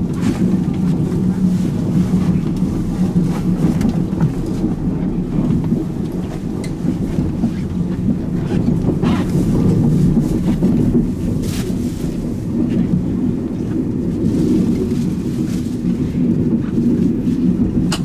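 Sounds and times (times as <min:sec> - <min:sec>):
train carriage rumble: 0:00.0 - 0:18.0.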